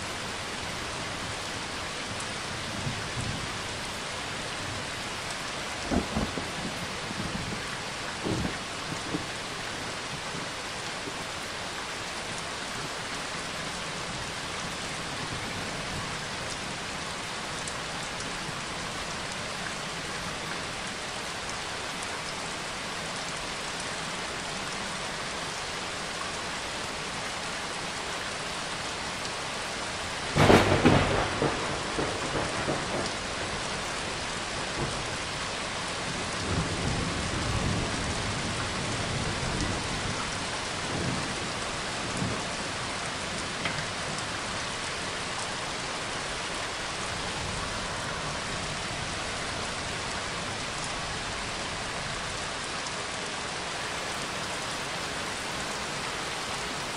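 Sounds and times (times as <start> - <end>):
steady rain: 0.0 - 56.9
thunder: 5.9 - 7.6, 8.2 - 9.2, 30.3 - 33.7.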